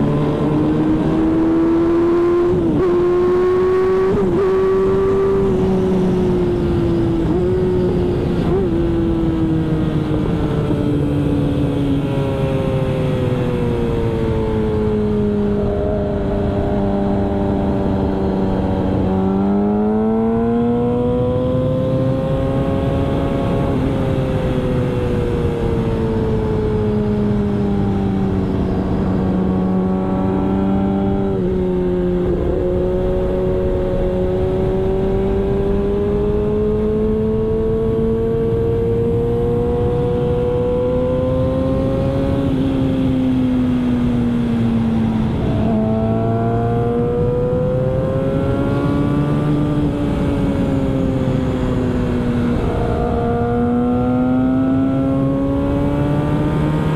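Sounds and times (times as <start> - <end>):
motorcycle engine running hard: 0.0 - 56.9.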